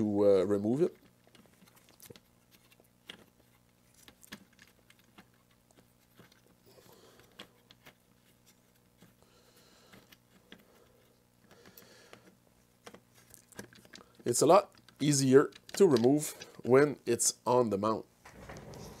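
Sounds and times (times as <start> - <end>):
hands clicking and tapping plastic: 11.4 - 16.8.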